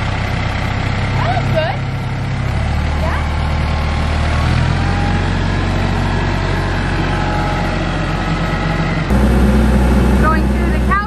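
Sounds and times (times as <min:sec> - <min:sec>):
tractor engine running: 0:00.0 - 0:11.0
loader bucket scooping mulch: 0:02.2 - 0:11.0.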